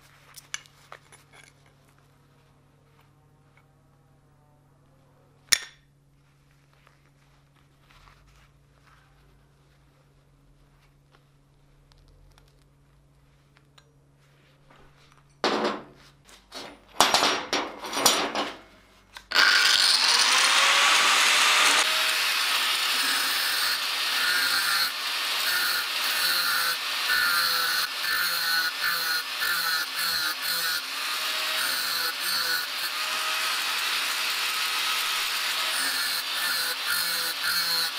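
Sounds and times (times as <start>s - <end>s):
steel parts scraping and knocking: 0.5s - 1.8s, 15.1s - 18.7s
angle grinder grinding metal: 19.2s - 37.9s.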